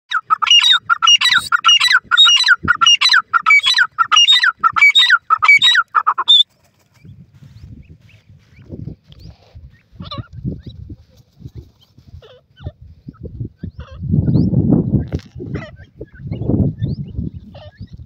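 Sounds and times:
bird calling shrilly: 0.1s - 6.5s
faint low scuffling: 6.5s - 12.2s.

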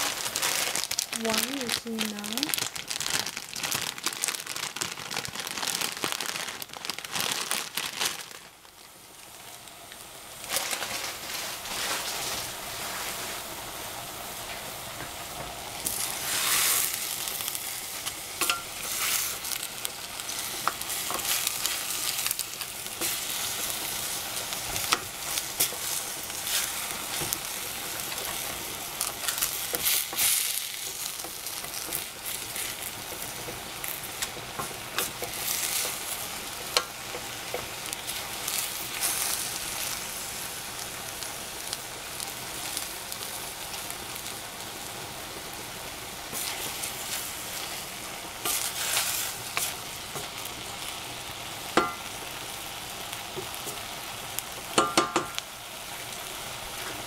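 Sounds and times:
plastic bag crinkling: 0.0s - 8.9s, 10.4s - 13.2s, 15.8s - 40.3s
vegetables sizzling in a pan: 0.0s - 57.0s.

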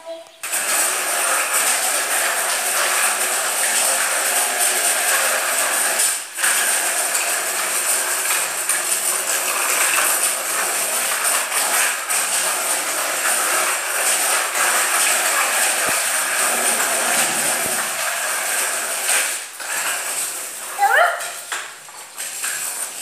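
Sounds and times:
bicycle rattling over stone floor: 0.4s - 23.0s.

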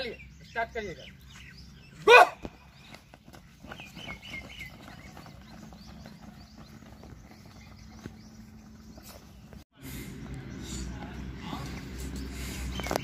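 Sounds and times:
runners' footsteps on a track: 2.4s - 9.6s.

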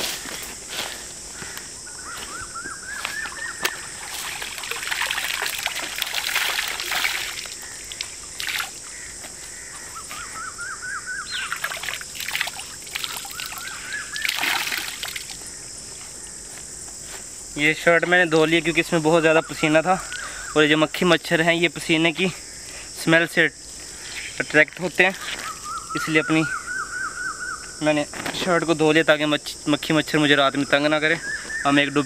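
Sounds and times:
night insects chorus: 0.0s - 32.0s
rapid chirping call: 1.5s - 5.2s, 7.1s - 15.7s, 25.1s - 27.8s, 30.6s - 32.0s
water splashing and sloshing: 3.6s - 8.9s, 11.5s - 15.4s.

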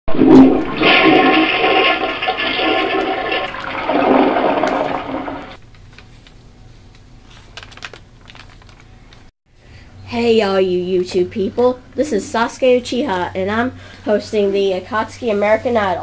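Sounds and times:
toilet flushing: 0.1s - 5.6s.

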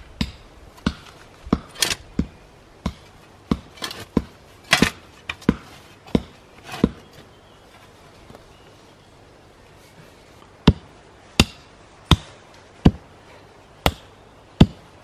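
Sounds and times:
spade striking soil: 0.2s - 7.1s
spade scraping earth: 0.8s - 2.2s, 3.0s - 8.1s.

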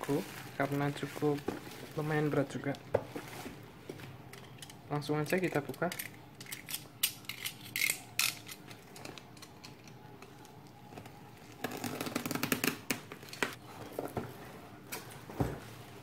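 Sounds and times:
bubble wrap crackling: 0.0s - 3.6s, 11.0s - 13.6s
packing tape tearing: 11.6s - 13.5s.

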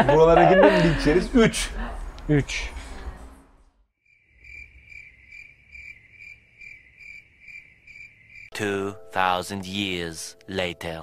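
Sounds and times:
crickets chirping: 4.0s - 8.5s.

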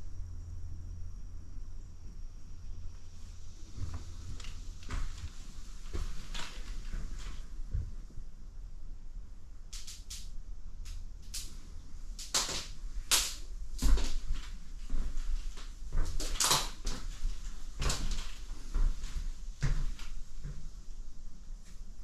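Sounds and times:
footsteps on laminate floor: 3.6s - 8.0s, 13.8s - 20.7s.

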